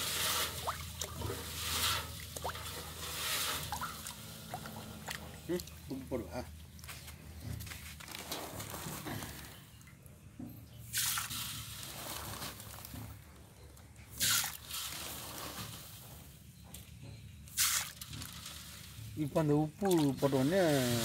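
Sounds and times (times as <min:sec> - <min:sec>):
water splashes: 0:00.0 - 0:06.1, 0:17.6 - 0:21.0
water sloshing in a metal basin: 0:00.0 - 0:06.9, 0:14.0 - 0:21.0.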